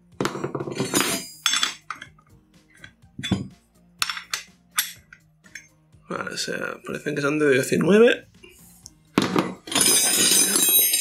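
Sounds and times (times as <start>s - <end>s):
metal spanners clinking: 0.2s - 5.8s, 8.7s - 11.0s.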